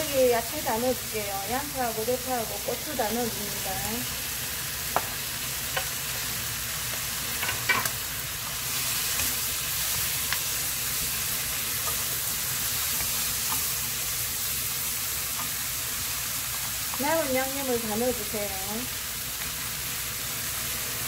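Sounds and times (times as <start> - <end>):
food sizzling in a wok: 0.0 - 21.0.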